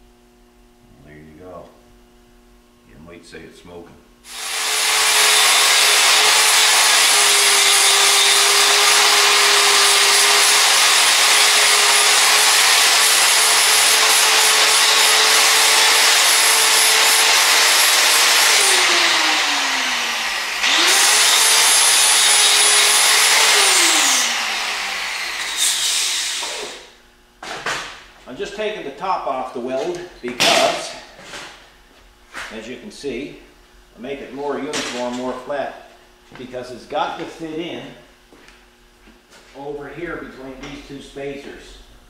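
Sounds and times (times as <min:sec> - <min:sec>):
angle grinder grinding steel: 0:04.3 - 0:26.9.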